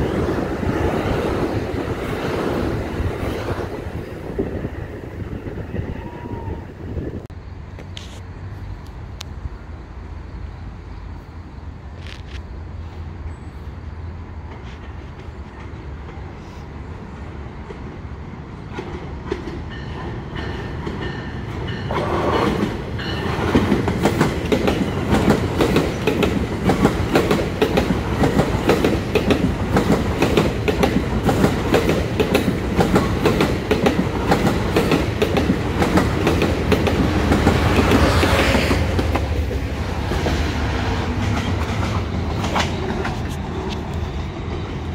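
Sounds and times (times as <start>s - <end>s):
train passing: 0.0s - 44.9s
wheels clicking over rail joints: 18.7s - 40.4s.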